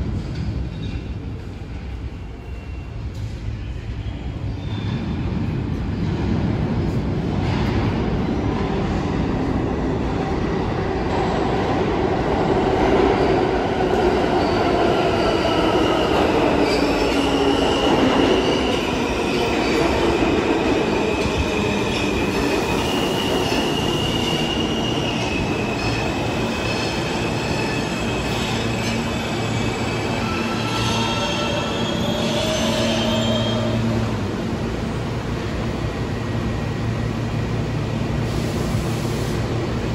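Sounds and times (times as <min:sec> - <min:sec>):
subway train rumble: 0:00.0 - 0:39.9
wheels squealing on rails: 0:14.0 - 0:34.1.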